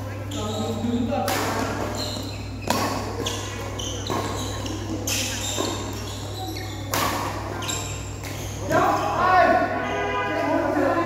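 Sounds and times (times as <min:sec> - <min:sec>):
rackets hitting shuttlecock: 0:01.2 - 0:08.8.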